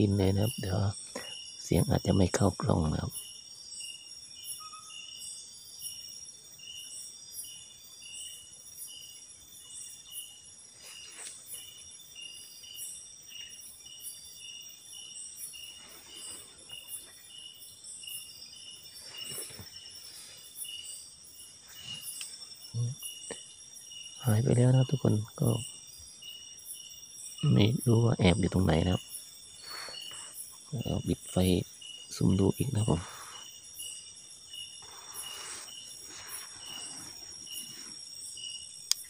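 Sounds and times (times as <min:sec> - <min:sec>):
crickets chirping: 0:00.0 - 0:39.0
faint rustles: 0:18.6 - 0:22.5.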